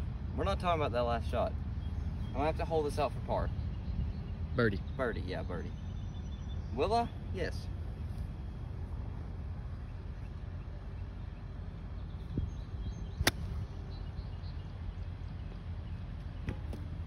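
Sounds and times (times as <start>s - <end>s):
wind rumble on microphone: 7.8s - 17.0s
golf club striking ball: 13.2s - 13.6s.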